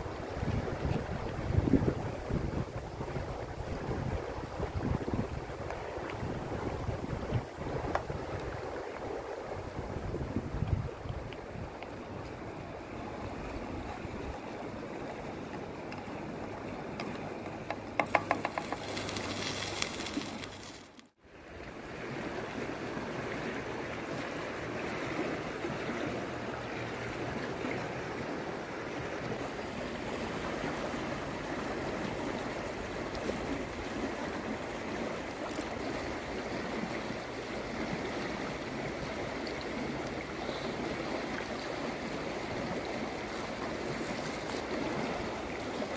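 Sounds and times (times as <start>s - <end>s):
river rushing over stones: 18.0s - 21.1s, 21.8s - 45.9s.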